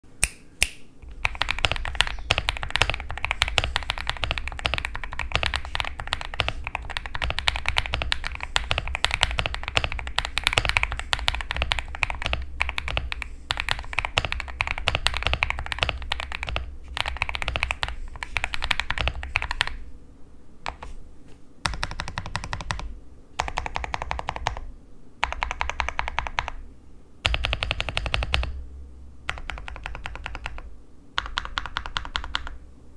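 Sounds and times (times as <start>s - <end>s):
fast typing on mechanical keyboard: 1.2s - 19.8s, 20.7s - 20.9s, 21.7s - 26.6s, 27.2s - 28.6s, 29.3s - 32.6s.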